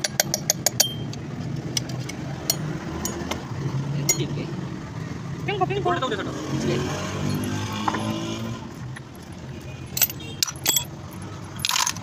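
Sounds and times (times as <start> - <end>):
sharp metallic clinks: 0.1 - 1.2, 9.9 - 12.0.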